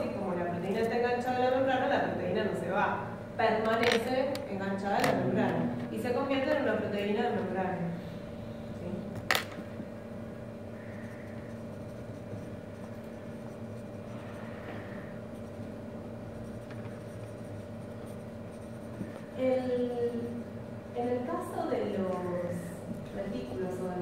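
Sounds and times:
woman speaking: 0.0s - 8.0s, 8.8s - 9.3s, 19.4s - 24.0s
steady low hum: 0.0s - 24.0s.

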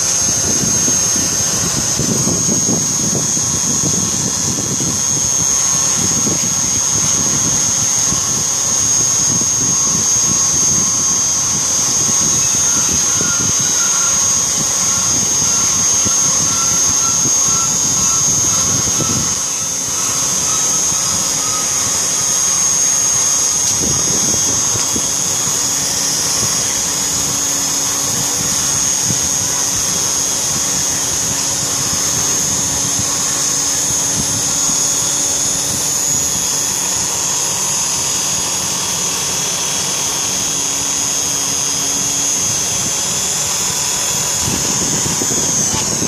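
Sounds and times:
engraving machine motor whine: 0.0s - 46.0s
low hum: 0.0s - 46.0s.

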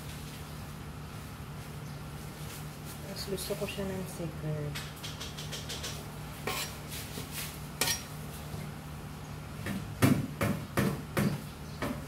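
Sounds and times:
ladle scraping a wok: 6.4s - 8.1s.

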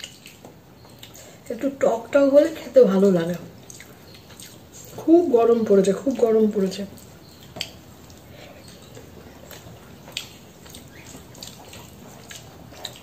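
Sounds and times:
person chewing food: 0.0s - 1.4s, 3.3s - 5.1s, 6.9s - 13.0s
fingers mixing rice on steel plate: 7.0s - 13.0s.

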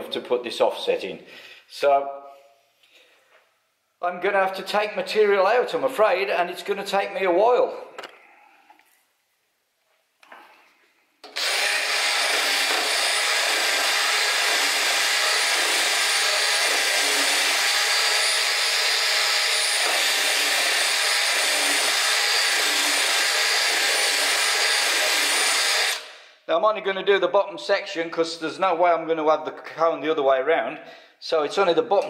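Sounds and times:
rotary tool grinding metal: 11.3s - 26.1s.

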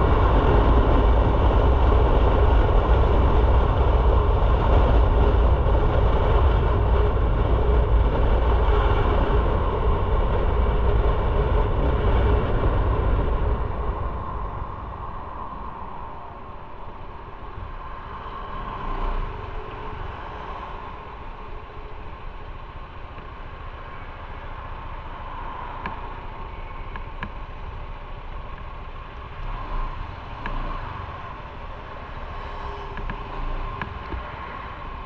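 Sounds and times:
motorcycle engine and road noise: 0.0s - 35.0s.

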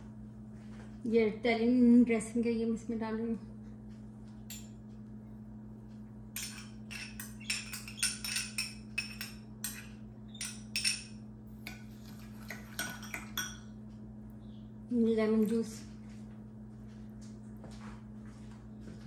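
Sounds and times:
low electrical hum: 0.0s - 19.0s
metal spoon scraping glass: 6.4s - 11.1s.

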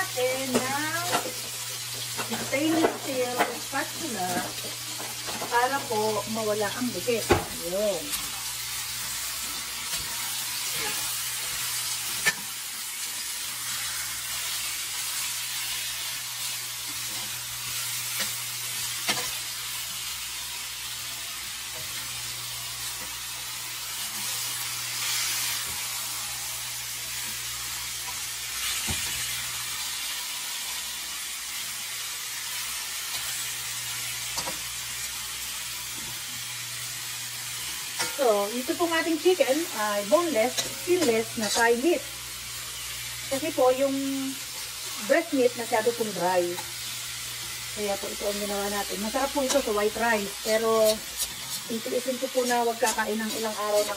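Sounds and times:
chicken sizzling in oil: 0.0s - 53.9s
utensils scraping pan: 38.8s - 41.8s, 49.1s - 53.9s.

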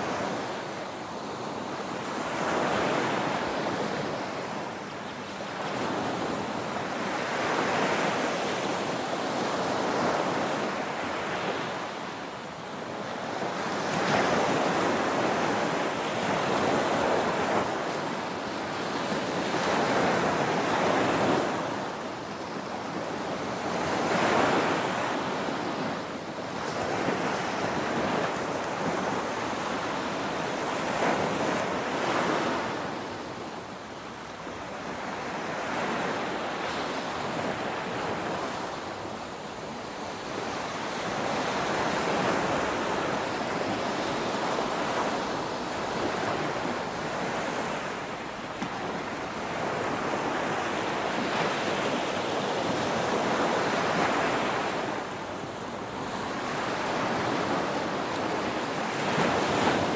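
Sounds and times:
small waves breaking on beach: 0.0s - 59.9s.

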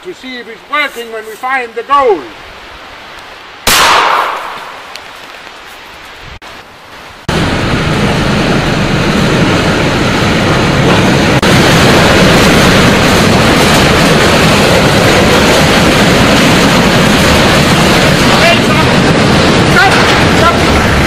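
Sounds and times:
shotgun shot echo: 3.6s - 4.9s
locomotive running through tunnel: 7.3s - 21.0s.

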